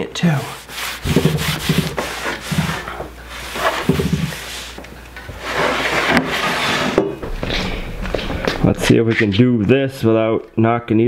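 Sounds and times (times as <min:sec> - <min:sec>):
cloth rubbing wooden board: 0:00.4 - 0:08.5
short low hum: 0:07.2 - 0:09.4.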